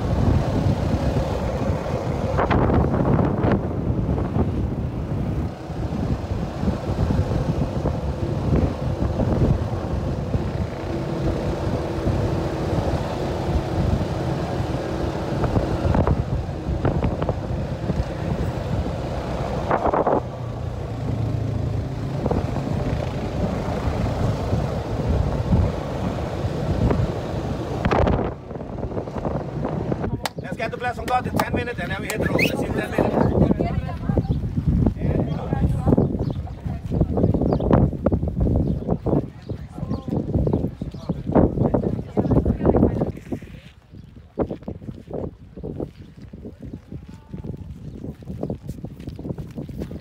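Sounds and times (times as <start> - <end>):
quad bike engine running: 0.0 - 30.2
wind rushing over microphone: 0.0 - 50.0.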